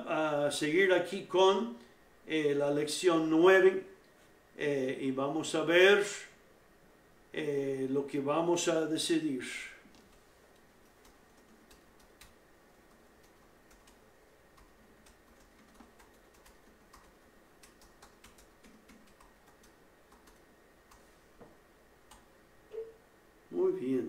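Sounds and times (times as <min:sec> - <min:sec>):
typing on laptop keyboard: 0:10.0 - 0:14.0, 0:14.6 - 0:21.1.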